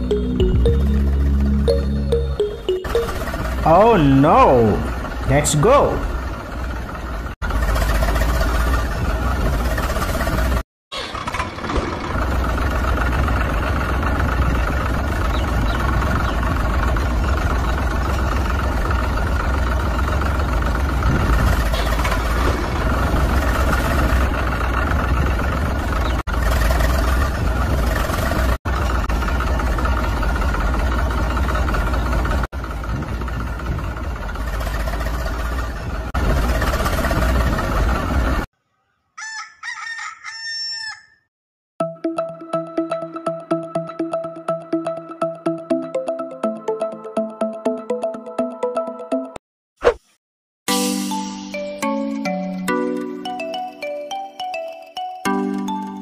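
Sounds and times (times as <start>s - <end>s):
electronic music jingle: 0.0s - 4.3s, 41.8s - 49.4s
engine drone with low hum: 0.0s - 38.5s
rooster crowing: 39.2s - 41.3s.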